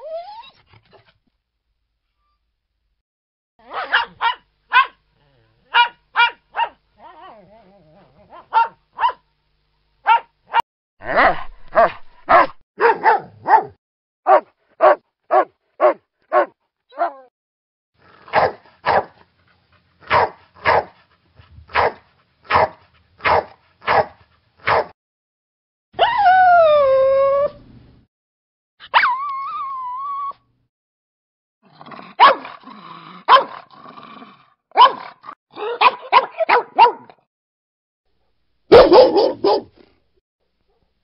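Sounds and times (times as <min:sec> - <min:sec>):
dog whimpering: 0:00.0 - 0:00.6, 0:07.0 - 0:08.5
fuller dog barks: 0:03.6 - 0:05.0, 0:05.7 - 0:06.8, 0:08.3 - 0:09.3, 0:10.0 - 0:17.3, 0:18.2 - 0:19.2, 0:20.0 - 0:21.0, 0:21.7 - 0:24.9, 0:32.1 - 0:32.6, 0:33.2 - 0:33.7, 0:34.7 - 0:37.2, 0:38.7 - 0:39.9
fast run of dog barks: 0:03.7 - 0:04.9, 0:11.2 - 0:16.5, 0:18.3 - 0:19.1, 0:20.1 - 0:21.0, 0:21.7 - 0:24.9, 0:32.2 - 0:32.5, 0:33.3 - 0:33.5, 0:34.8 - 0:35.0, 0:35.8 - 0:37.1, 0:38.7 - 0:39.8
dog barking in quick pairs: 0:03.7 - 0:05.0, 0:05.7 - 0:06.8, 0:10.0 - 0:16.5, 0:18.3 - 0:19.2, 0:20.1 - 0:21.0, 0:21.7 - 0:24.9, 0:32.2 - 0:32.5, 0:33.3 - 0:33.6, 0:34.8 - 0:35.1, 0:35.8 - 0:37.1, 0:38.7 - 0:39.8.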